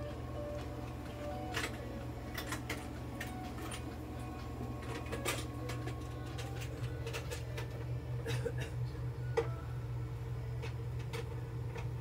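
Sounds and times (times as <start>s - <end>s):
oxygen equipment humming: 0.0s - 12.0s.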